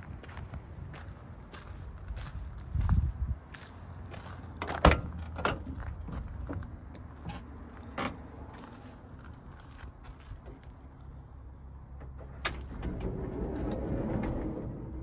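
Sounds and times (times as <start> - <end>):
low rumble: 12.6 - 15.0.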